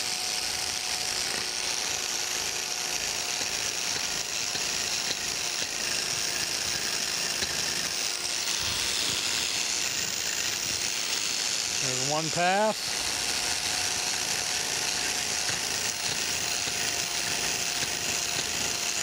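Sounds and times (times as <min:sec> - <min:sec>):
electric power scraper scraping metal: 0:00.0 - 0:19.0.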